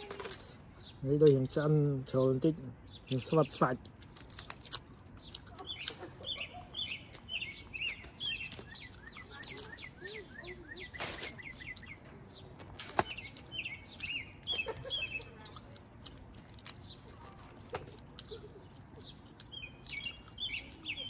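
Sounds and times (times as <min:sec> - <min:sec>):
small birds chirping: 0:00.0 - 0:21.0
shells cracking as peeled by hand: 0:03.8 - 0:09.8, 0:12.8 - 0:21.0.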